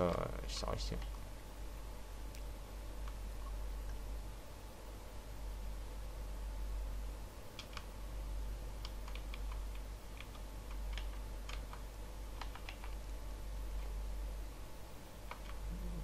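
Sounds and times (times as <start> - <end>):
steady low hum: 0.0 - 16.0
keyboard and mouse clicks: 7.6 - 7.9, 8.8 - 13.0, 15.2 - 15.7.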